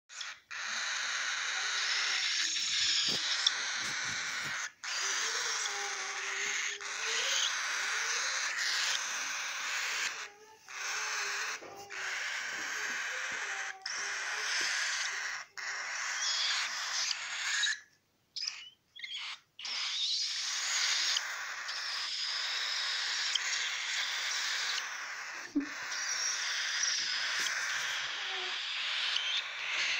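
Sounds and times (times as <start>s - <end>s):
bird chicks raspy hissing calls: 0.1s - 29.9s.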